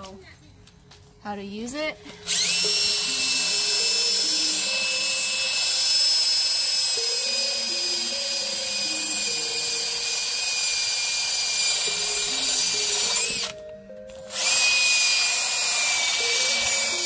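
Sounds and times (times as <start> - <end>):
drill motor whine: 2.2 - 13.6, 14.2 - 17.0.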